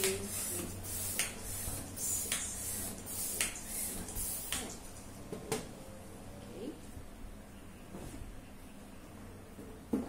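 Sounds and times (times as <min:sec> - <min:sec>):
hand pump rush of air: 0:00.0 - 0:04.8.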